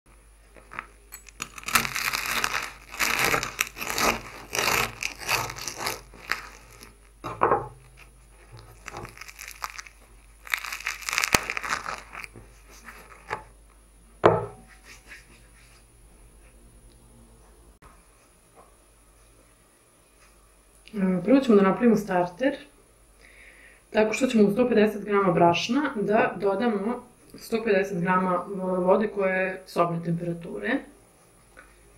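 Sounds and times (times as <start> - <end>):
crackling bread crust: 0.4 - 13.6.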